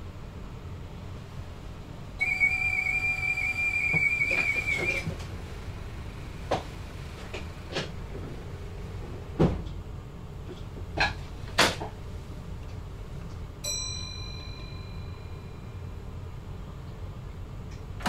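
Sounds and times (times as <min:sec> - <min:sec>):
steady low hum: 0:00.0 - 0:18.0
electronic chime tone: 0:02.2 - 0:05.1.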